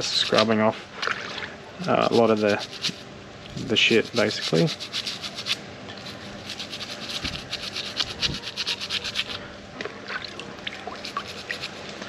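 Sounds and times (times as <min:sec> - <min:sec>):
stiff brush scrubbing shell: 0:00.0 - 0:00.8, 0:01.8 - 0:09.4, 0:10.8 - 0:12.0.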